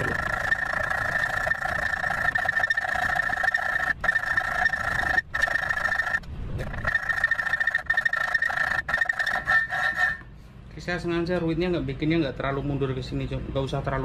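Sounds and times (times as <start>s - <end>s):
hacksaw squealing on metal: 0.0s - 10.3s.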